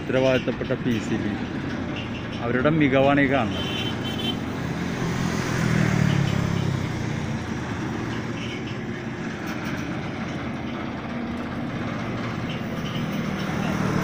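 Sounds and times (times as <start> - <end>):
engine low rumble: 0.0 - 14.0
traffic on a bridge: 0.0 - 14.0.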